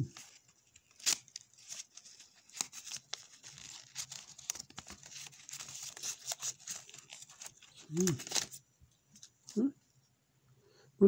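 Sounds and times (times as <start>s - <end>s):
paper crinkling and tearing: 0.1s - 8.6s.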